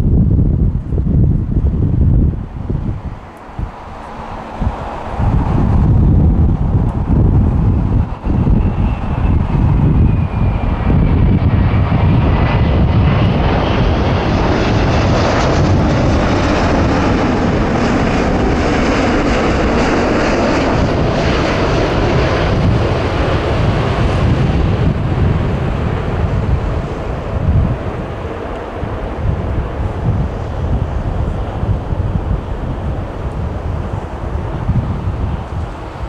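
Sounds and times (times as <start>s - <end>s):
high whine falling in pitch: 0.0s - 20.6s
jet engines rumbling overhead: 0.0s - 36.0s.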